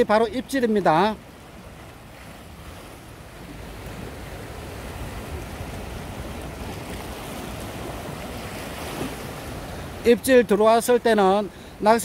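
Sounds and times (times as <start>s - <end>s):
surf breaking on rocks: 0.0s - 12.0s
wind rumbling on microphone: 1.2s - 10.1s.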